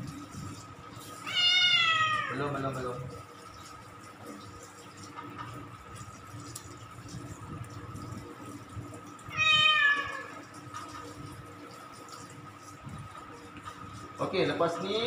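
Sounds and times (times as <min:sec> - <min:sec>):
cat meowing: 0:01.2 - 0:02.4, 0:09.3 - 0:10.4.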